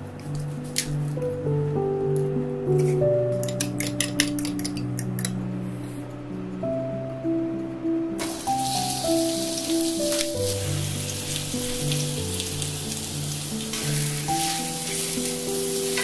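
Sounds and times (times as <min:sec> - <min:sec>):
background music: 0:00.0 - 0:16.0
onions sizzling in oil: 0:08.2 - 0:16.0.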